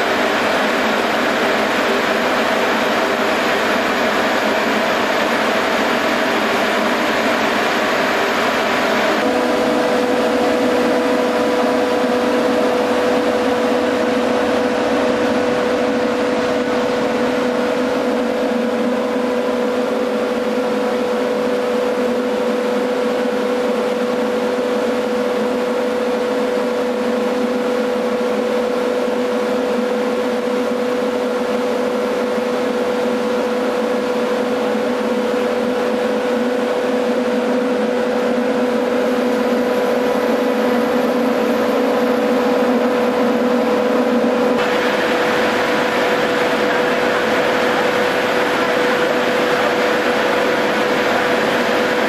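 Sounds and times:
steady hum: 0.0s - 52.0s
rush of air and spray: 44.6s - 52.0s.

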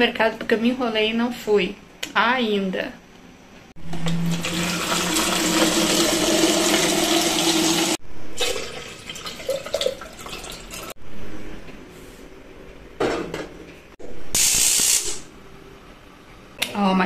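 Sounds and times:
water pouring into plastic jug: 4.1s - 10.9s.

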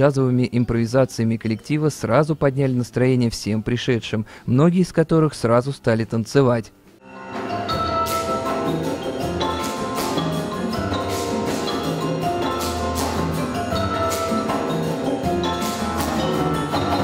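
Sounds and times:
marimba melody: 7.0s - 17.0s
percussion strokes: 7.0s - 17.0s
pulsing bass line: 7.4s - 17.0s.

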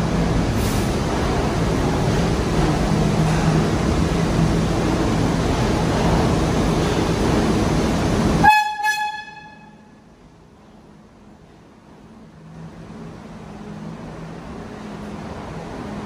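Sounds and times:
subway train rumble: 0.0s - 16.0s
train horn toots: 8.4s - 9.9s.

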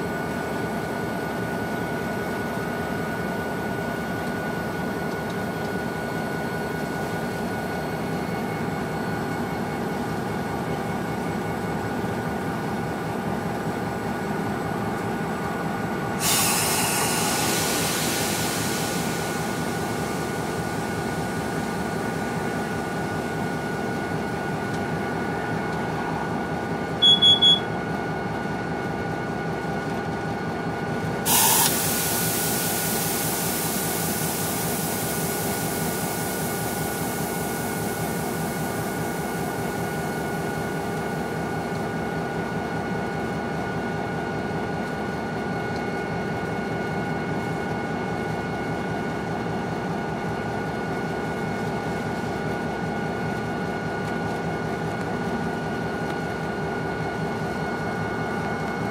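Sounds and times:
freight train rumbling: 0.0s - 58.9s
hiss: 16.2s - 22.7s, 31.3s - 41.0s
high beeps: 27.0s - 27.7s.

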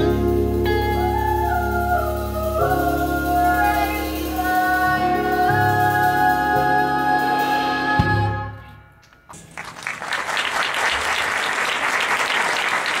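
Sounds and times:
audience applause: 9.4s - 13.0s.

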